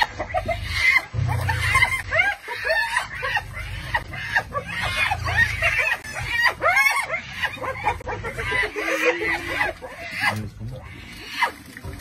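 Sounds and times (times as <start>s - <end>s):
hyenas giggling and squealing: 0.0s - 11.8s
low rumble: 0.4s - 6.7s.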